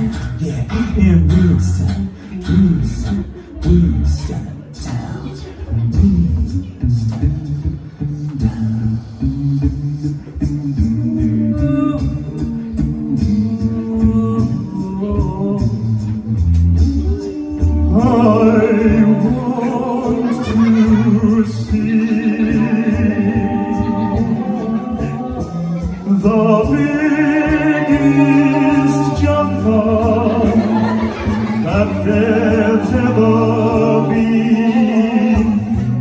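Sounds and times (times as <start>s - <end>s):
low sung bass line: 0.0s - 36.0s
male group singing in harmony: 8.4s - 36.0s.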